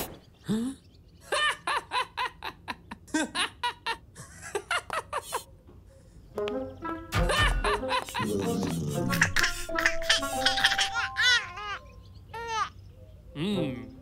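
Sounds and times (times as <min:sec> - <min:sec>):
cartoon boy laughing: 0:01.2 - 0:05.5, 0:07.1 - 0:11.8.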